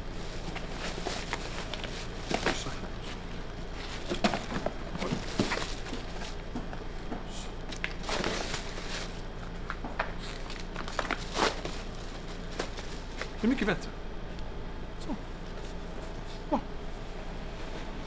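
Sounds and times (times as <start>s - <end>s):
steady low hum: 0.0s - 18.0s
plastic liner crinkling: 7.8s - 13.4s.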